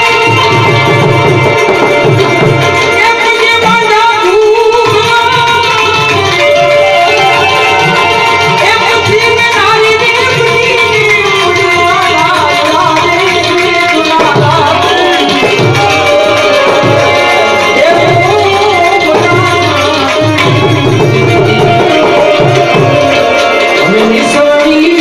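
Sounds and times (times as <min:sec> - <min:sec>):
harmonium: 0:00.0 - 0:25.0
tabla drumming: 0:00.0 - 0:25.0
man singing: 0:14.1 - 0:25.0.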